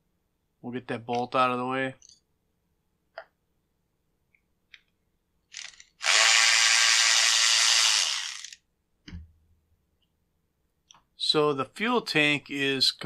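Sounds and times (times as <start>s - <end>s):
cordless ratchet motor running: 5.5s - 8.6s.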